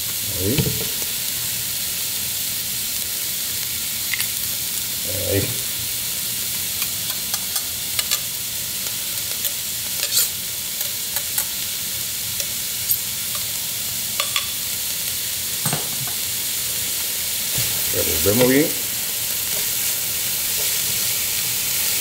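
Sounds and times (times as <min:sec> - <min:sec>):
vegetables sizzling in oil: 0:00.0 - 0:22.0
utensil stirring in pot: 0:09.1 - 0:11.5, 0:17.5 - 0:22.0.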